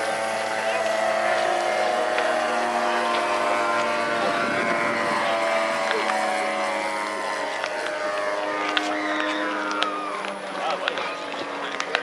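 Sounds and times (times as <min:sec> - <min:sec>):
model plane engine and propeller: 0:00.0 - 0:12.0.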